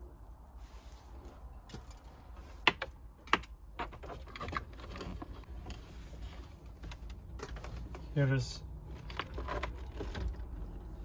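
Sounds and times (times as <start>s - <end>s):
cable rustling: 3.6s - 11.0s.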